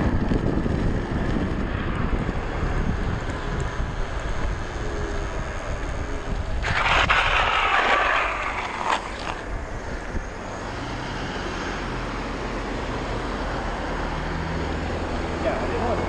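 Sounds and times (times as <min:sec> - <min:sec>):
wind rushing over microphone: 0:00.0 - 0:11.5
rushing hiss: 0:06.6 - 0:09.4.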